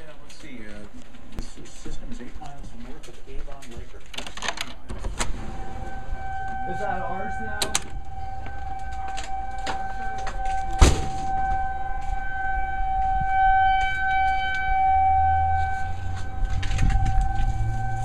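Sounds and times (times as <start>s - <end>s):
tornado warning siren: 4.9s - 18.0s
sharp knock: 10.8s - 11.3s.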